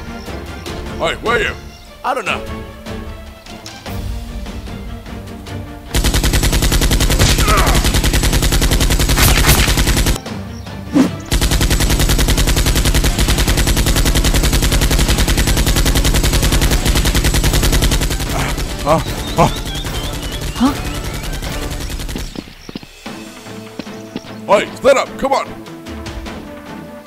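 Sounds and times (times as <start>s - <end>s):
machine-gun sound effect: 5.9s - 10.2s, 11.3s - 22.6s.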